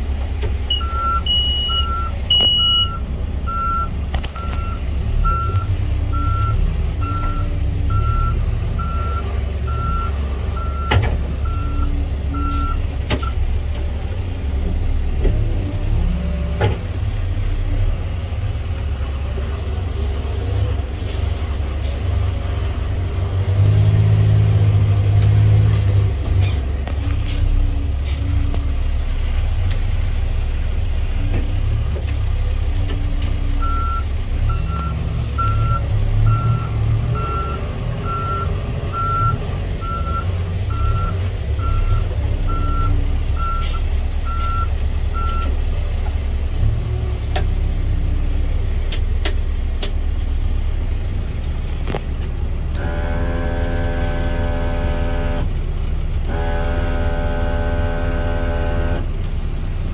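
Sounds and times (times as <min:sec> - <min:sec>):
diesel engine running: 0:00.0 - 0:59.9
reverse alarm beeping: 0:00.7 - 0:13.4.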